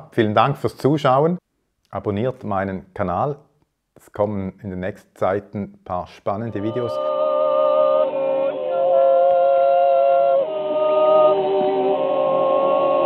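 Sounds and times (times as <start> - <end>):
unaccompanied voices singing chords: 6.5 - 13.0.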